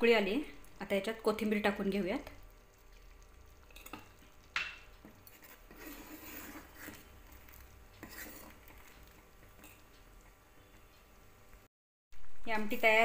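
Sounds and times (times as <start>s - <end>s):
ladle scraping pot: 3.0s - 9.9s.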